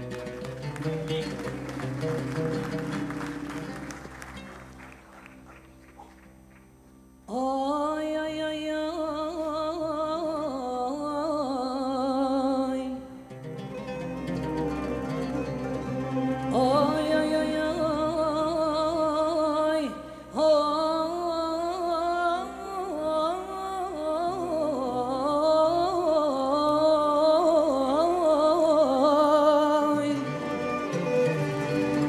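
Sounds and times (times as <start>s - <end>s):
orchestra of ouds violins accordion: 14.1s - 17.7s, 30.2s - 32.0s.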